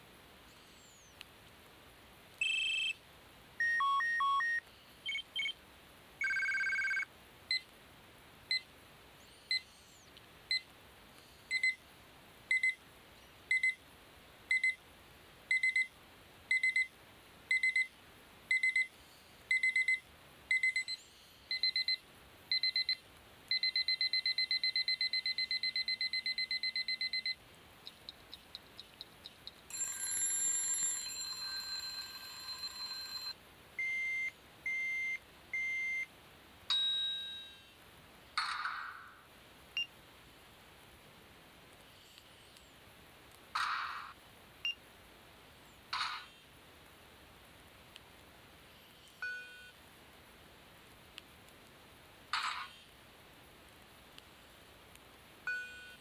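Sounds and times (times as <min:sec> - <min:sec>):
electronic phone ringtones: 0:02.4 - 0:03.0, 0:03.6 - 0:05.5, 0:06.2 - 0:07.1, 0:19.5 - 0:27.4, 0:29.7 - 0:36.0
short beep patterns: 0:02.4 - 0:03.0, 0:03.6 - 0:05.5.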